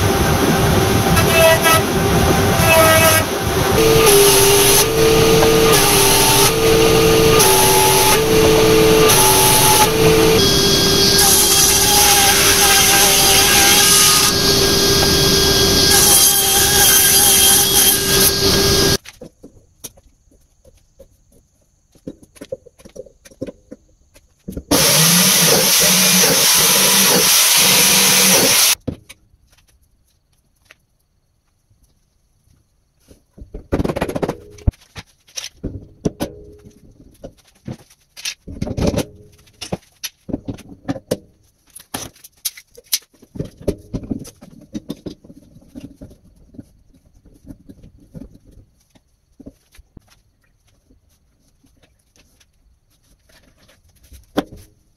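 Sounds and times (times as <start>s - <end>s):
woodworking power tool running: 0.0s - 19.0s, 24.7s - 28.8s
biscuit joiner cutting wood: 0.2s - 19.0s, 24.7s - 28.8s.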